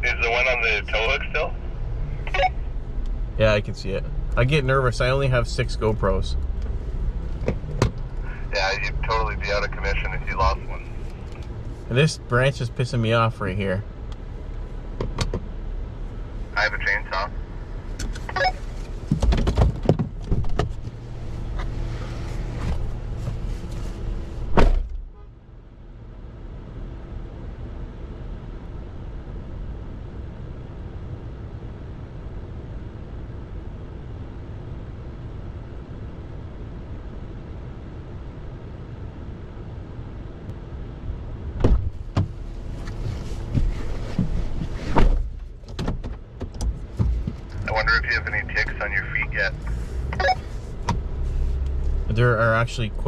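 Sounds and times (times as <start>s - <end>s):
car door clicks and knocks: 15.0s - 15.5s, 19.1s - 20.9s, 41.6s - 42.4s, 45.0s - 47.4s
car door shutting: 18.0s - 21.0s, 24.5s - 25.0s, 41.6s - 47.5s.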